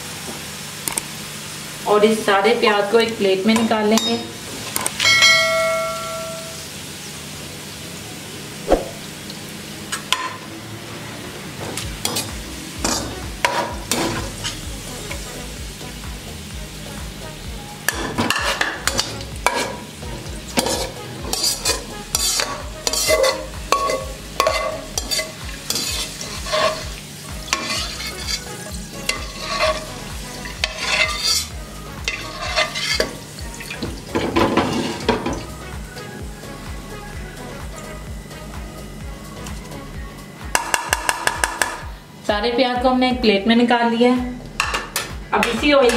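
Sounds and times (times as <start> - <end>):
hot oil sizzling: 0.0 - 42.7
skimmer scraping a metal pan: 17.9 - 19.9, 20.5 - 35.4.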